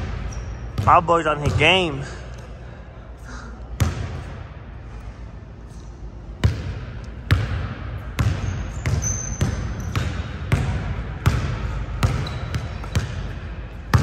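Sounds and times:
sneaker squeak: 0.0s - 1.7s, 8.2s - 11.4s, 12.0s - 14.0s
basketball bouncing on gym court: 0.0s - 2.2s, 3.7s - 4.6s, 6.2s - 14.0s.

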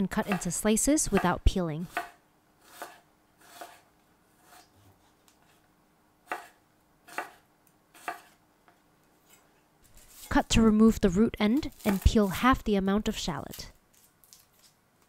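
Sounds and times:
knife cutting ginger: 0.1s - 5.6s, 6.2s - 8.4s, 11.5s - 12.4s.

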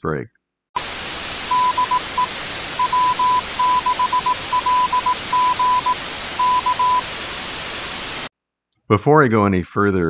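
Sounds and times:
morse code tone: 0.8s - 8.3s
radio static hiss: 0.8s - 8.3s.

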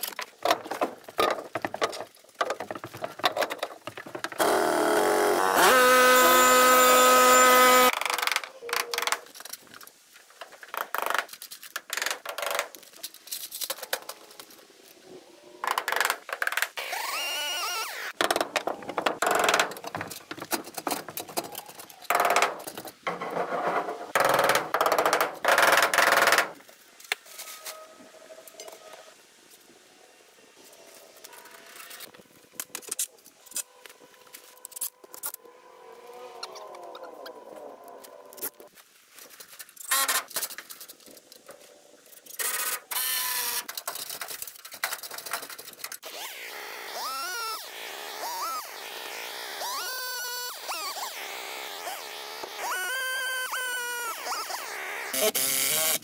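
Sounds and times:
knocks and clatters of tools: 0.0s - 4.6s, 18.2s - 27.4s, 42.2s - 46.0s
small motor whining: 4.4s - 7.9s, 46.0s - 56.0s.

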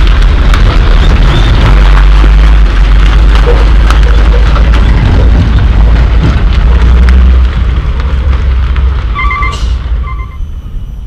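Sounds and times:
dump truck diesel engine rumble: 0.0s - 11.0s.

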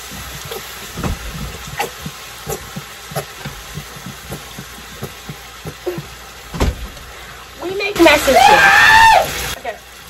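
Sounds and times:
squeeze bottle squirting: 0.0s - 6.6s.

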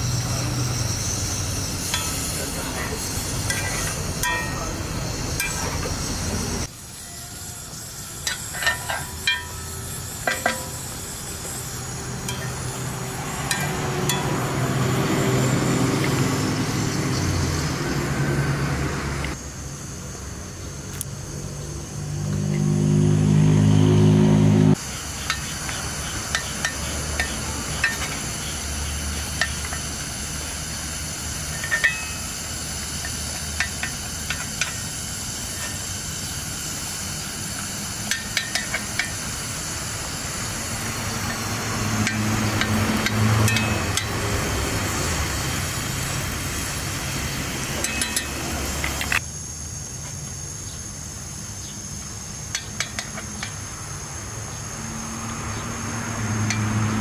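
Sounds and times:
metal spoon clinking: 3.5s - 4.7s, 8.2s - 9.7s.

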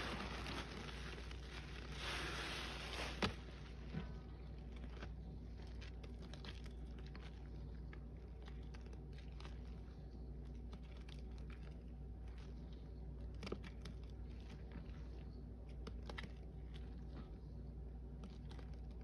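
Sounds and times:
soapy sponge squelching: 0.0s - 12.6s.

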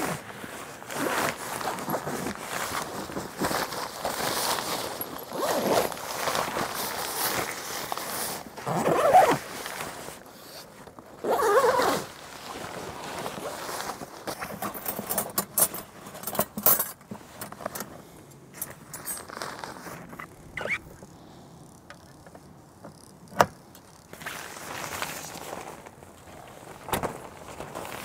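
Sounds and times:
fabric rustling: 0.0s - 14.7s, 18.7s - 21.1s, 24.1s - 28.0s
zipper being pulled open: 5.2s - 6.0s, 8.2s - 9.5s, 10.4s - 12.2s, 19.3s - 22.2s.

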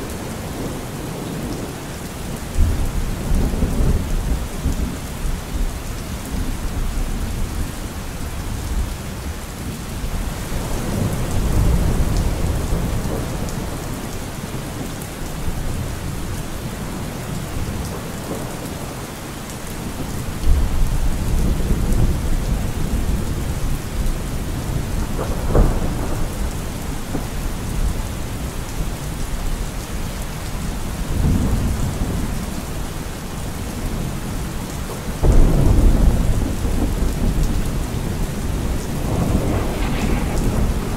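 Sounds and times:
steady rain: 0.0s - 40.9s
rolling thunder: 10.2s - 14.0s, 20.4s - 29.2s, 35.1s - 40.9s.

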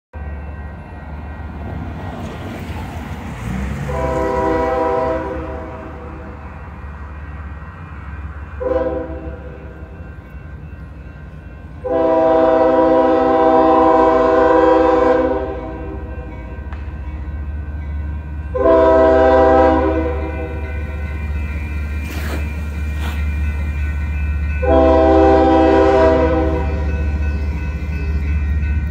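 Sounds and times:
low train rumble: 0.1s - 28.9s
locomotive air horn: 3.8s - 6.4s, 8.6s - 9.7s, 11.8s - 16.1s, 18.5s - 20.6s, 24.6s - 27.0s.

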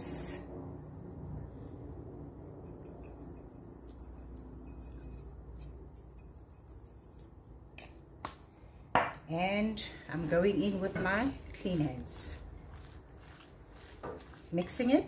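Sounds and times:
low room hum: 0.0s - 15.0s
seasoning grains ticking into bowl: 2.5s - 7.9s, 11.4s - 15.0s.

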